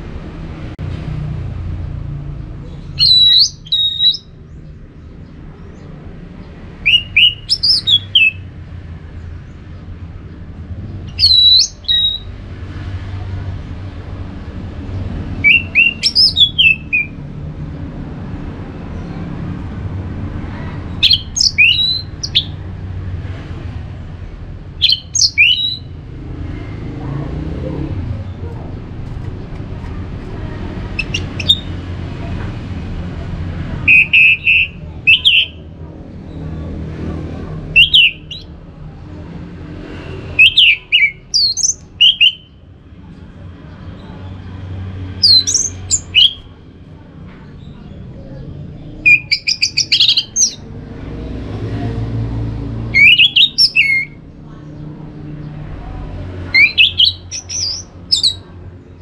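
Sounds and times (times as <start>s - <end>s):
thrush calling: 2.9s - 4.4s, 6.8s - 8.6s, 11.1s - 12.4s, 15.4s - 17.2s, 20.6s - 22.6s, 24.8s - 26.0s, 30.6s - 32.1s, 33.8s - 35.6s, 37.7s - 38.5s, 40.0s - 42.6s, 45.0s - 46.6s, 49.0s - 50.7s, 52.9s - 54.2s, 56.4s - 58.6s.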